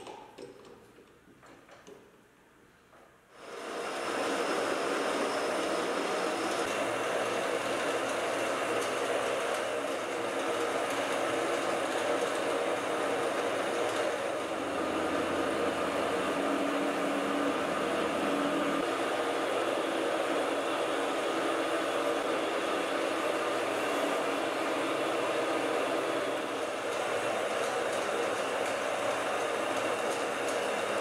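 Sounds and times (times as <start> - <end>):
metal lathe whirring and cutting: 3.4 - 31.0.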